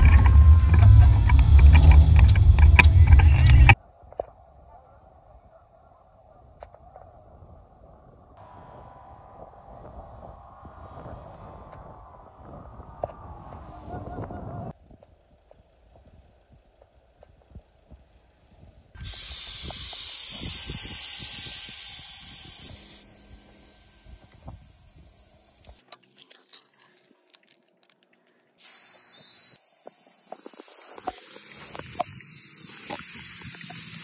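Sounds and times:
air hissing from tyre valve: 19.0 - 25.8, 28.6 - 34.0.

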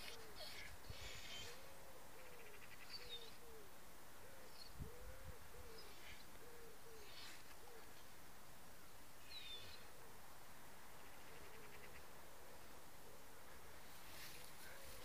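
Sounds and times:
dog whining: 0.0 - 1.6
faint bird chirps: 0.0 - 8.1.

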